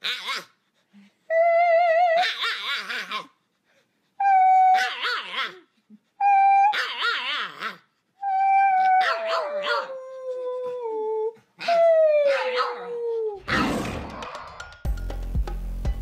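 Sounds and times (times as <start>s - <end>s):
dog howling: 6.5s - 13.6s
music: 13.8s - 16.0s.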